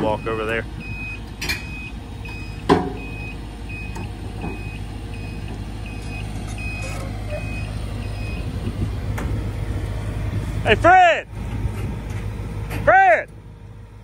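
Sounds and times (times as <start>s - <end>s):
backup alarm beeping: 0.0s - 8.5s
diesel heavy equipment rumbling: 0.0s - 14.0s.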